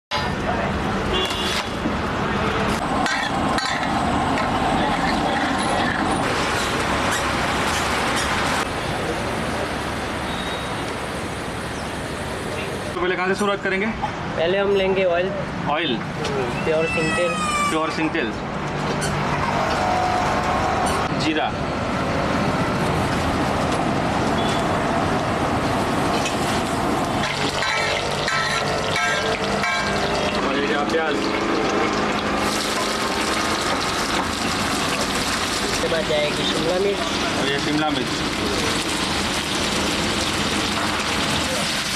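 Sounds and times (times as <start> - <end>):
road traffic rumble: 0.1 - 41.9
seeds sizzling in hot oil: 26.1 - 41.9.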